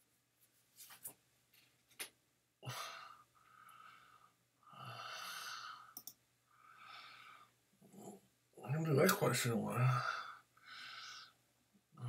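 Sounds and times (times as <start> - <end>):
man breathing heavily: 2.6 - 7.6, 10.0 - 11.4
mouse clicks: 6.0 - 6.2.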